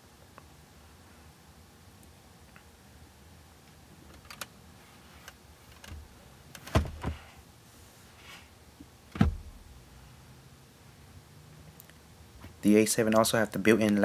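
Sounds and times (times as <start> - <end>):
loud thump: 9.2 - 9.6.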